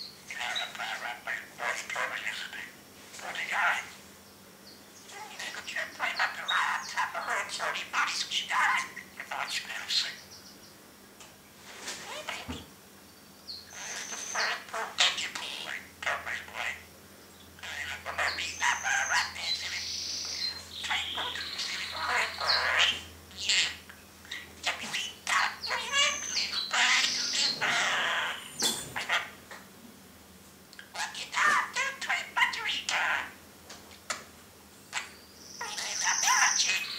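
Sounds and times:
budgerigar chattering and warbling: 0.3s - 3.9s, 5.1s - 10.2s, 13.7s - 16.9s, 17.6s - 29.4s, 30.8s - 33.4s, 34.9s - 36.9s.

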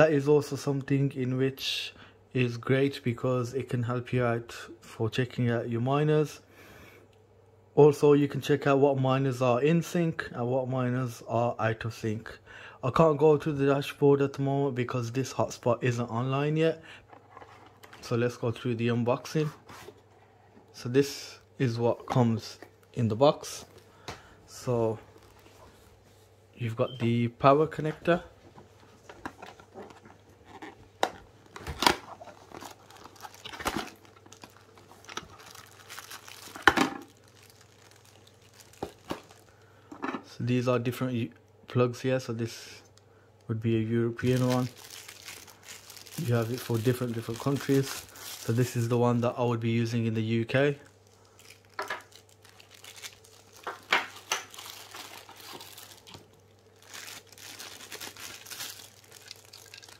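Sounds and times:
plastic packaging crinkling: 17.0s - 18.6s, 21.9s - 25.9s, 27.4s - 39.8s, 44.2s - 59.9s.

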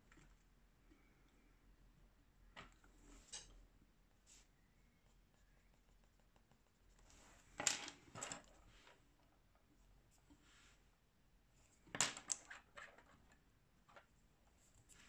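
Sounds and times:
pencil scratching on paper: 4.3s - 7.3s.

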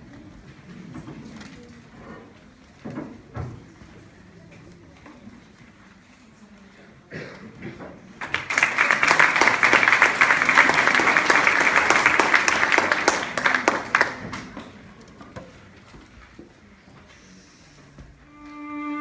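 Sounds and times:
audience applauding: 8.2s - 14.6s.

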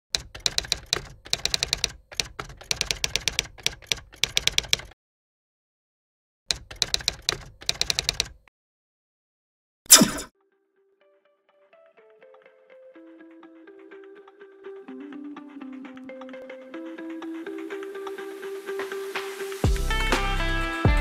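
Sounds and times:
rapid keyboard key clicks: 0.2s - 5.0s, 6.5s - 8.4s.

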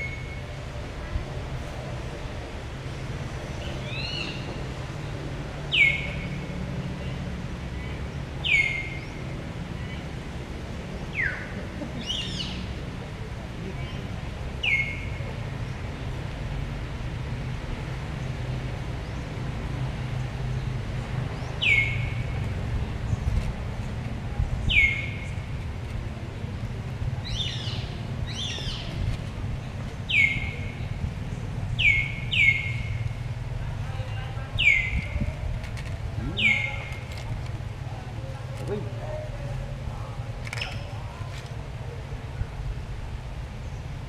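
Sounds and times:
bird calling: 7.9s - 9.2s, 11.1s - 12.8s, 21.4s - 22.3s, 24.7s - 25.4s, 30.1s - 30.9s, 31.8s - 33.0s, 34.6s - 35.2s, 36.2s - 37.2s.

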